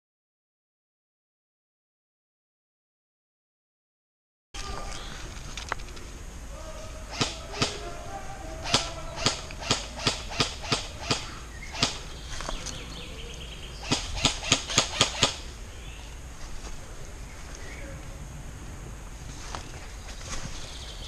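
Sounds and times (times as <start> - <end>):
airsoft rifle shots: 7.1 - 12.2, 13.8 - 15.6.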